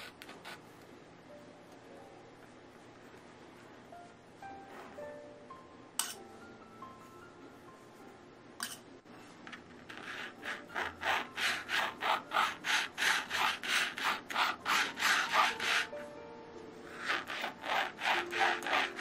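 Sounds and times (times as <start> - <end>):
cake scraper scraping frosting: 0.0 - 0.6, 9.8 - 16.0, 16.9 - 19.0.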